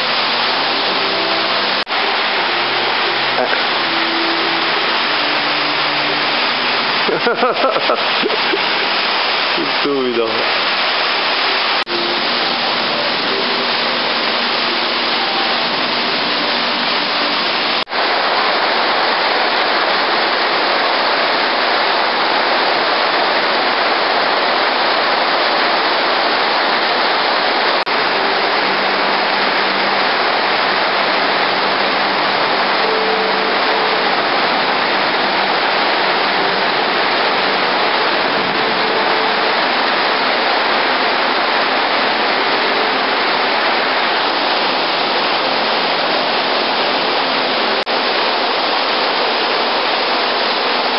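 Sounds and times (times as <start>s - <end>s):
falling water rushing: 0.0s - 50.9s.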